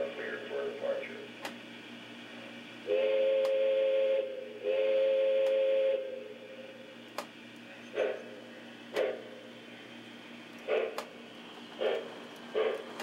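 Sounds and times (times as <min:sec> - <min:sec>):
model train whistle blast: 0:02.9 - 0:06.3.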